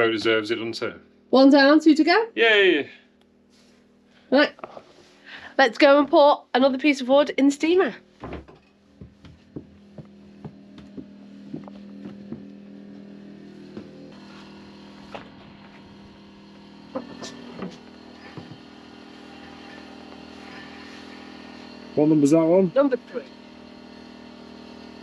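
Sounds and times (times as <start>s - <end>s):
generator humming: 0.0s - 25.0s
footsteps on wooden boards: 8.2s - 13.1s.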